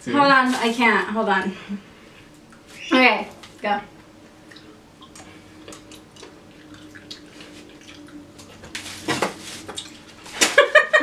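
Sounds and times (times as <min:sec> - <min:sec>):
faint steady hum: 0:00.0 - 0:11.0
wet chewing: 0:04.4 - 0:08.8.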